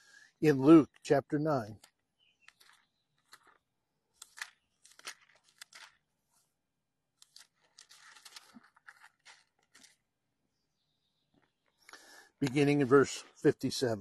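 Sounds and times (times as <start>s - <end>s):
thin pages turning: 1.8s - 6.5s, 7.1s - 10.1s.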